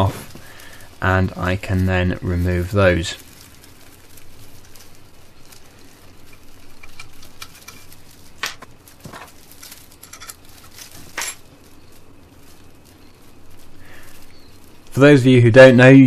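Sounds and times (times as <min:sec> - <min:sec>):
faint background noise: 0:00.0 - 0:16.0
metal parts clicking and knocking: 0:06.3 - 0:11.5.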